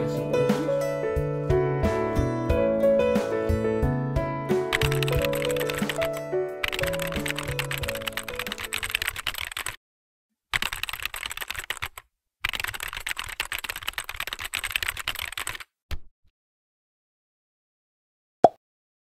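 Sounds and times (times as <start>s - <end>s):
computer keyboard typing: 4.7s - 9.8s, 10.6s - 15.7s.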